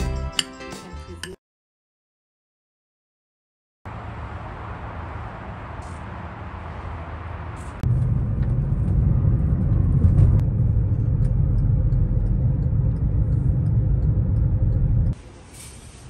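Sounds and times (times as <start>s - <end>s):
car driving rumble from inside: 7.4s - 15.2s.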